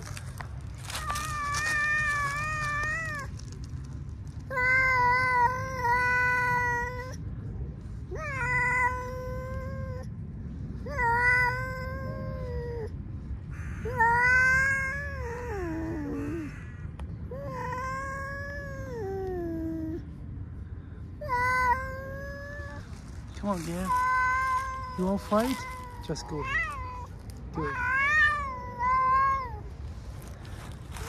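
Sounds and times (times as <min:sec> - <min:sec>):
cat yowling: 0:00.9 - 0:03.4, 0:08.1 - 0:10.0, 0:10.9 - 0:12.9, 0:13.8 - 0:16.6, 0:23.6 - 0:29.7.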